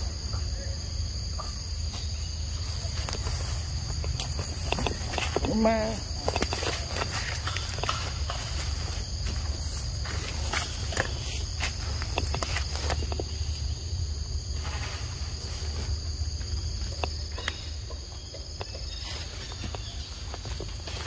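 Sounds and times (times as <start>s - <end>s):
insects droning: 0.0s - 21.0s
clicks and rustles: 2.9s - 13.4s.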